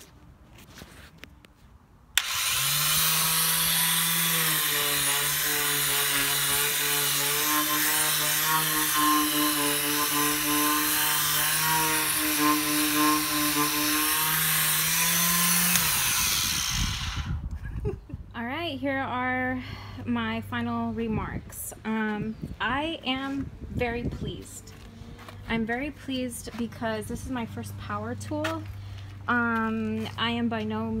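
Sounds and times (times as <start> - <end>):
orbital sander motor hum: 2.2 - 17.6
sandpaper rasping on wood: 2.6 - 16.1.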